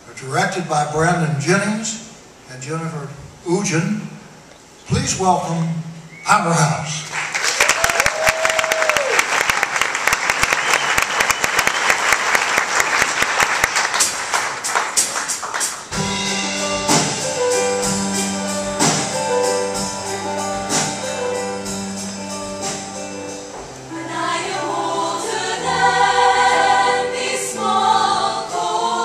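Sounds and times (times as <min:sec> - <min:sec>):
audience applauding: 0:07.0 - 0:16.0
steady drum beat: 0:13.8 - 0:26.8
held chords: 0:15.9 - 0:29.0.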